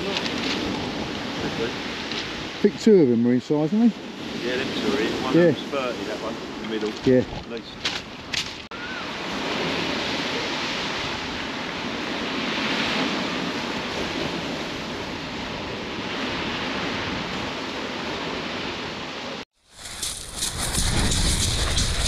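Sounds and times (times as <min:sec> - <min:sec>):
surf breaking on shingle: 0:19.8 - 0:22.0.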